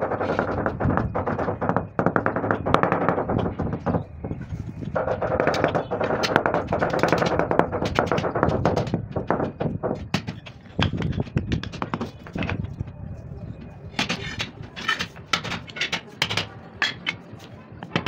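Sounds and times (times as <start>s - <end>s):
rubber mallet tapping stone slabs: 5.0s - 12.7s, 14.0s - 17.2s.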